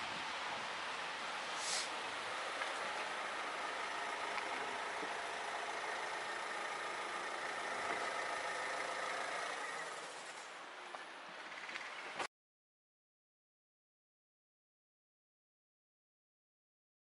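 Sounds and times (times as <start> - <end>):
background noise: 0.0 - 12.3
engine-like hum: 0.0 - 12.3.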